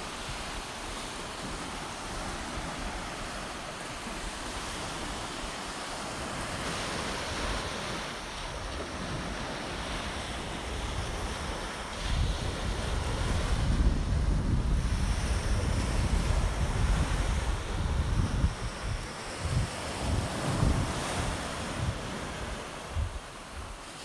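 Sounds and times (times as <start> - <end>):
surf waves breaking: 0.0 - 24.0
wind buffeting microphone: 0.0 - 24.0.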